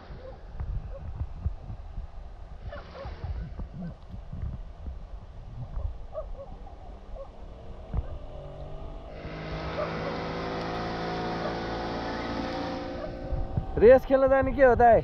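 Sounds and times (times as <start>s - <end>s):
low wind rumble on microphone: 0.0s - 15.0s
motorboat engine drone: 6.1s - 13.9s.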